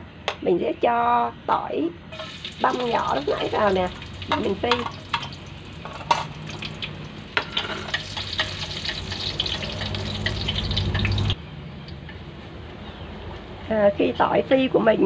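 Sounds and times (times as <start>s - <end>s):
garlic sizzling in hot oil: 2.1s - 11.4s.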